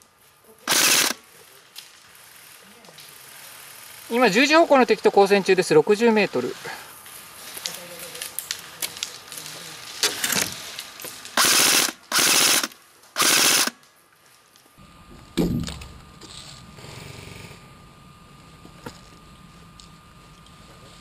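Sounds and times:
airsoft gun full-auto bursts: 0.7 - 1.2, 11.4 - 13.8
sharp clicks: 11.4 - 13.8
dull thump: 15.4 - 15.8.

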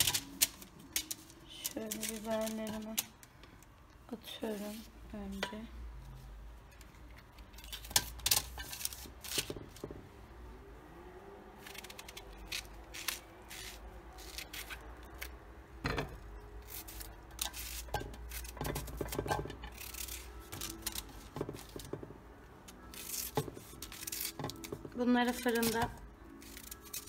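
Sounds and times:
knife cutting onion: 11.6 - 15.3, 16.6 - 21.8.

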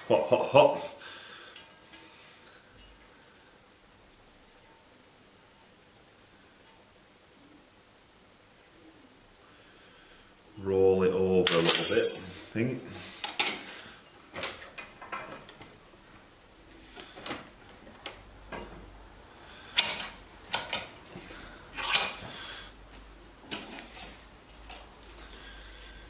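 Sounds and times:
metal clicks and clunks: 19.8 - 20.9.

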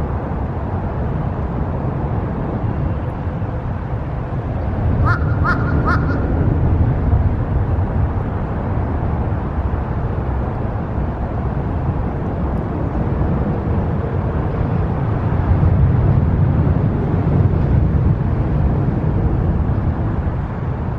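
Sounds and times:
road traffic rumble: 0.0 - 20.9.

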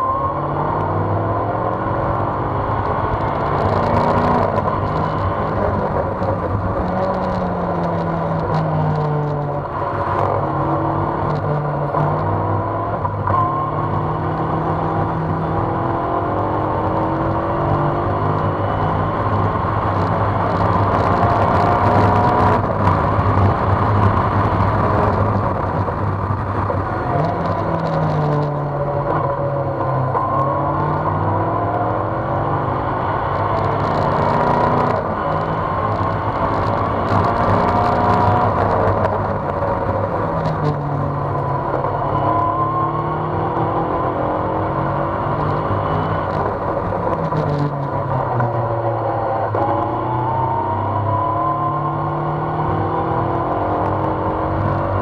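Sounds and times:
race car engine revving: 0.0 - 55.0
wind and road noise: 0.0 - 55.0.

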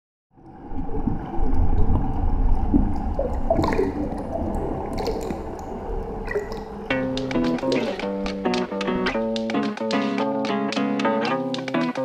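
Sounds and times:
gurgling water: 0.4 - 8.2
deep underwater rumble: 0.4 - 8.3.

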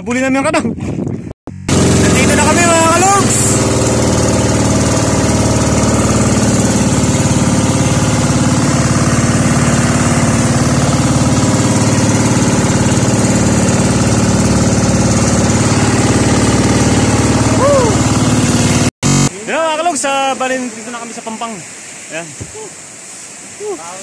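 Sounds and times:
boat engine running: 1.5 - 19.6.

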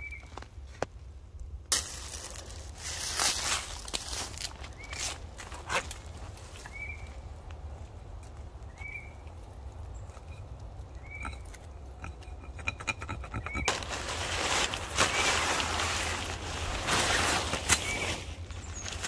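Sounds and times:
leaf rustling: 1.7 - 11.1, 13.6 - 19.0
tent fabric rustling and flapping: 13.7 - 19.0.

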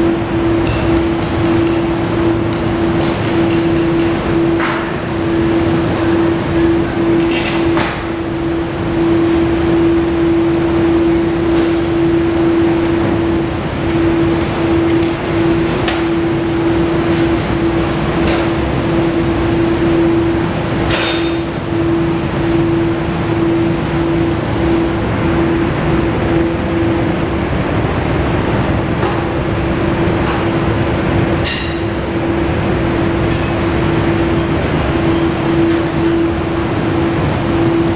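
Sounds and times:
mechanical drone: 0.0 - 37.9.

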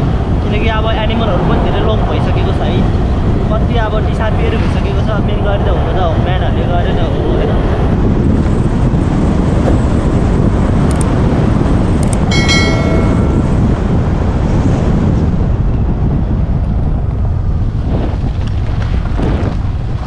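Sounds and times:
wind rushing over microphone: 0.0 - 20.0
clicks: 10.9 - 11.1, 12.0 - 12.3
short ringing chime: 12.3 - 13.9.

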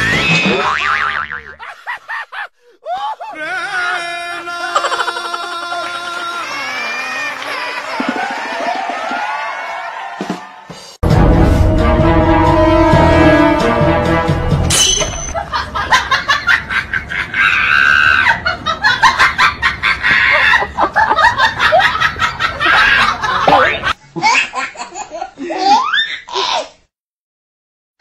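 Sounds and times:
people laughing: 1.6 - 9.2, 15.3 - 25.9.

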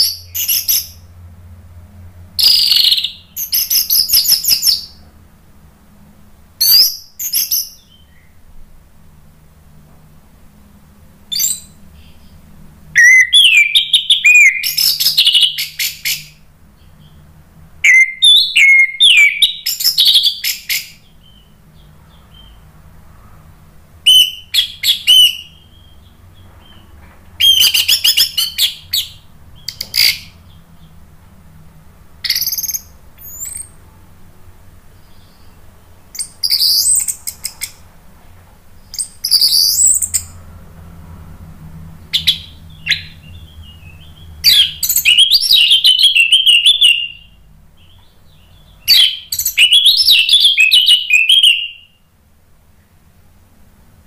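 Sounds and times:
thrush singing whistled phrases: 2.4 - 5.0, 13.0 - 16.4, 17.8 - 21.5, 24.1 - 26.0, 27.4 - 30.3, 32.2 - 33.8, 36.2 - 37.8, 38.9 - 40.3, 42.2 - 47.4, 48.5 - 52.0.

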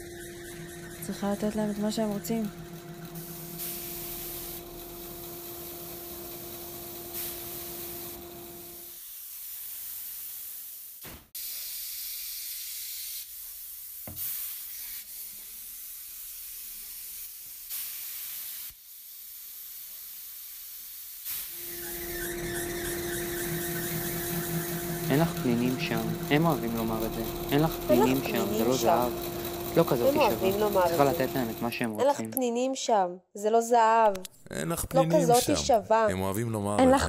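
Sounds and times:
low hum: 21.6 - 31.6.

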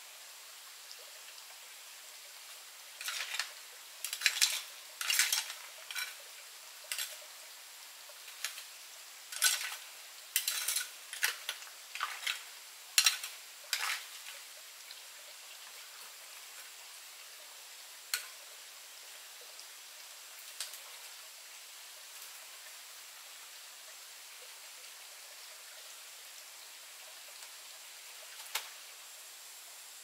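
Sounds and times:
running water: 0.0 - 30.0
clatters and scrapes: 3.0 - 6.2, 6.9 - 7.2, 9.3 - 9.8, 10.4 - 12.4.

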